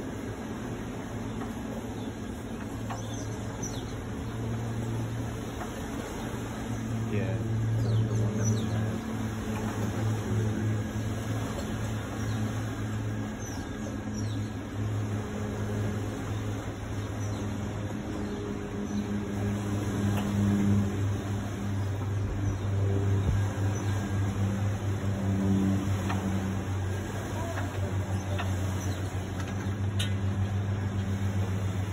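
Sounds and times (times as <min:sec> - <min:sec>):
funicular drive humming: 0:00.0 - 0:31.9.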